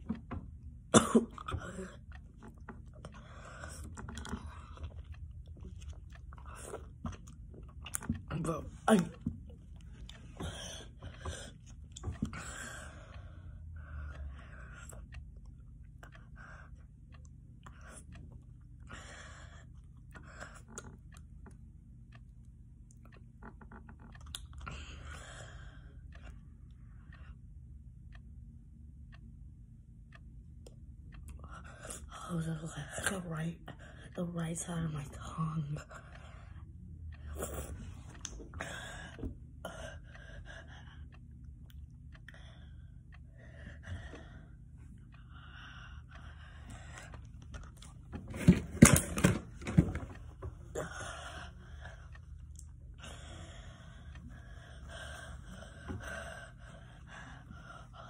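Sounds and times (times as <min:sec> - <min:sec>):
lip clicks: 0:24.1 - 0:25.1.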